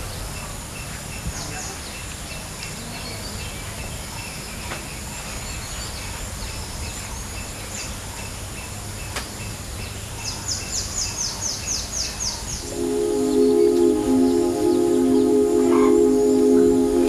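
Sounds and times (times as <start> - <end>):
steady background hiss: 12.5 - 17.0
pulsing high note: 12.6 - 17.0.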